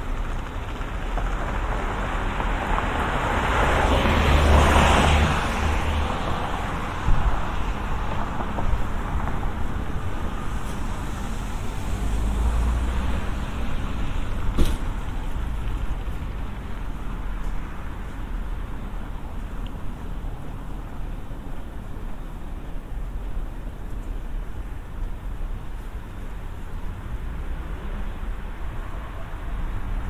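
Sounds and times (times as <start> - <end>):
car passing: 0.0 - 21.3
low city rumble: 0.0 - 30.0.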